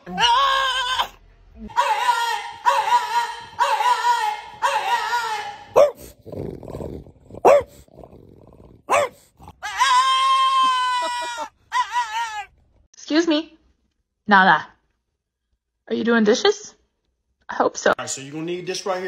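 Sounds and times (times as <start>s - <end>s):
dogs howling: 0.0s - 6.0s, 7.4s - 7.7s, 8.9s - 12.5s
dogs yelping: 0.0s - 6.2s, 7.4s - 7.8s, 8.9s - 12.6s.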